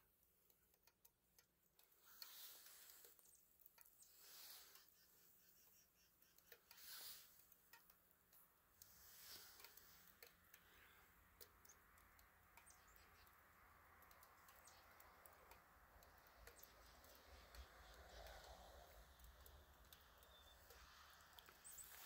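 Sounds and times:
small ticks and clicks: 0.0 - 22.0.

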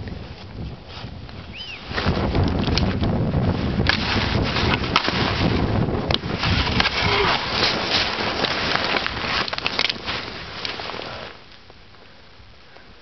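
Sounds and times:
wind buffeting microphone: 0.0 - 11.4
skis scraping through snow: 3.4 - 11.5
sharp cracks and knocks: 3.8 - 10.8.

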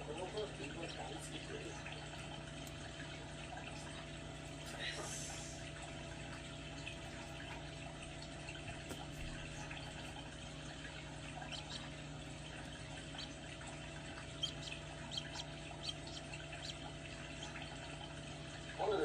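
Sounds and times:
incubator humming: 0.0 - 19.0
chick peeping: 11.4 - 18.1.

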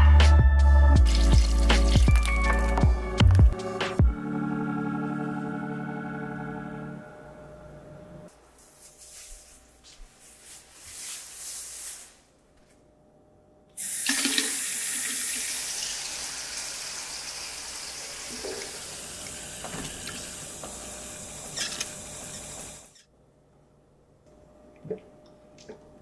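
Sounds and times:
water running into steel sink: 1.0 - 2.8, 13.8 - 22.9.

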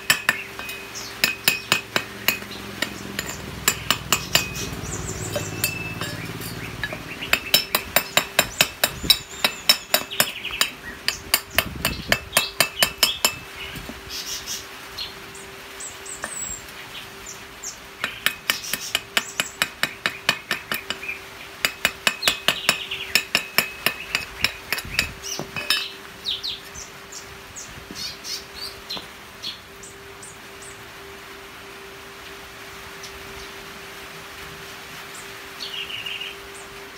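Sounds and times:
chipping hammer striking metal: 0.0 - 13.4, 18.0 - 26.0.

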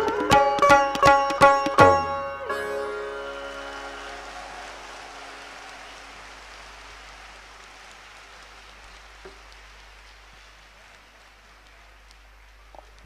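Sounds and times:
audience applauding: 3.0 - 13.0.

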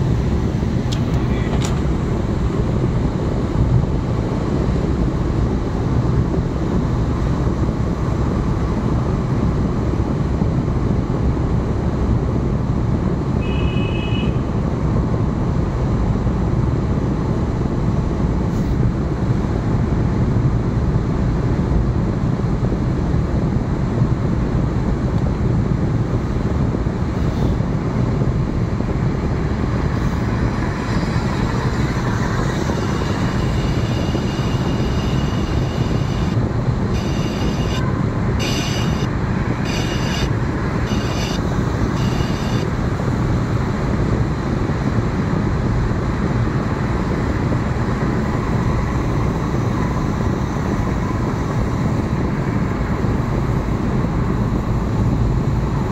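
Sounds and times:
car engine and tyre road noise: 0.0 - 55.9
brief high tone: 32.7 - 41.4, 42.0 - 42.7.

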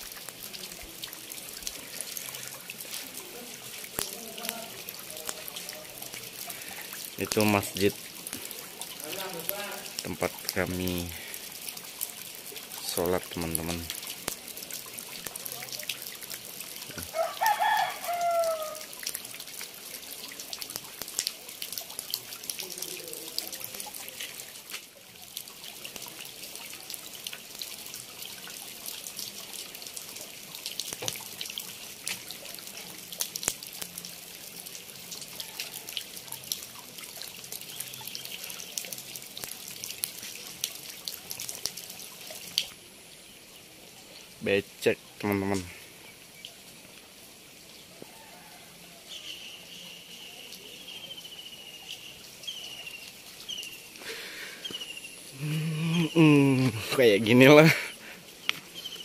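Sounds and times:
drip ticks: 0.0 - 42.8, 45.2 - 45.8, 51.9 - 55.1, 57.7 - 59.0
rain falling on mud and puddles: 0.0 - 59.0
drawn-out call: 17.1 - 18.9.

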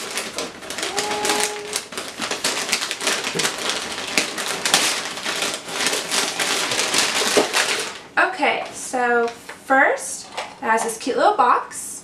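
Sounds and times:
paper wrapping crinkling: 0.0 - 8.1.

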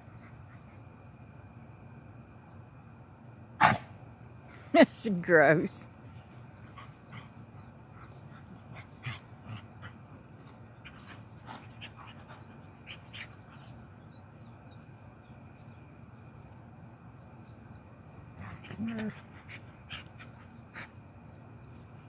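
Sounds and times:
soft dog noises: 0.0 - 1.4, 6.0 - 16.6, 17.4 - 22.0.

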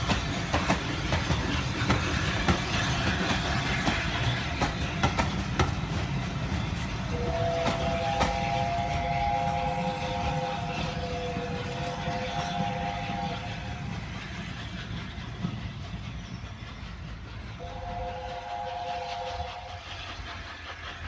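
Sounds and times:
train coaches rumbling on rails: 0.0 - 21.0
train whistle chord: 7.1 - 13.7, 17.6 - 19.8.

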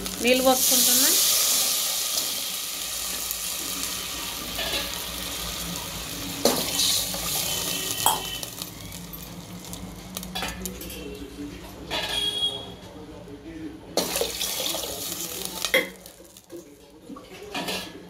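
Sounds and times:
oil sizzling and bubbling: 0.0 - 11.0, 14.0 - 16.7
water pouring into oil: 14.0 - 16.4.

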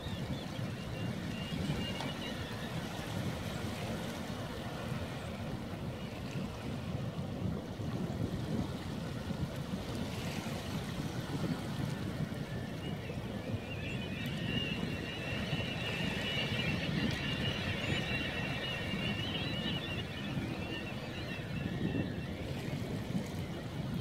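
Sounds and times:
flock of waterbirds calling: 0.0 - 24.0
wind buffeting microphone: 0.0 - 24.0.

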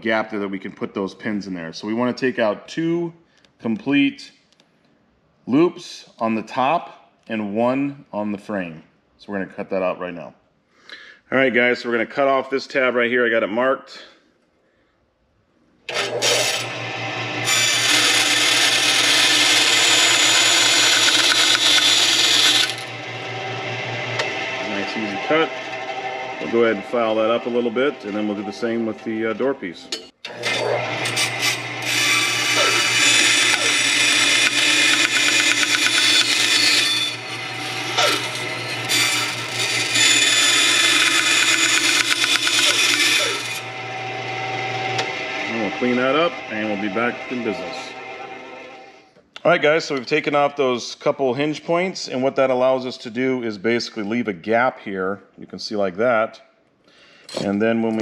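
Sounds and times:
saw blade rasping through metal: 15.9 - 23.4, 29.8 - 49.0
bandsaw running hum: 15.9 - 49.0.

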